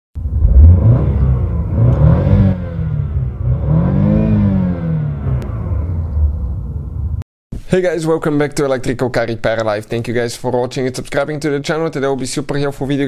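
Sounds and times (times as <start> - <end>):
car engine revving: 0.2 - 7.2.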